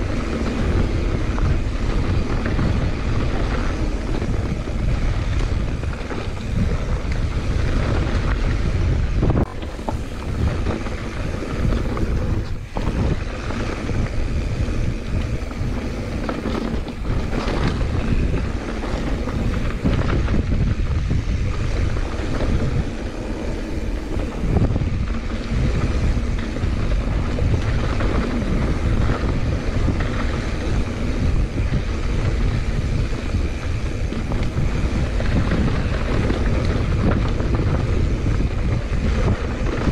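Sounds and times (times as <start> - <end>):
tyres rumbling over dirt: 0.0 - 39.9
wind rushing over microphone: 0.0 - 39.9.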